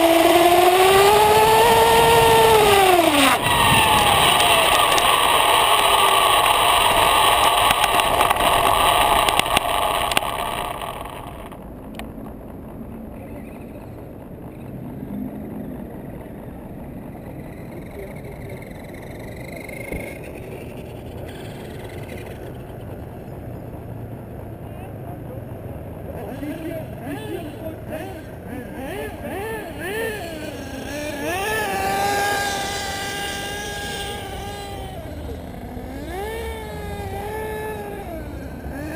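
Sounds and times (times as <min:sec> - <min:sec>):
faint distant whine: 0:00.0 - 0:38.9
rc car running over asphalt: 0:00.0 - 0:38.9.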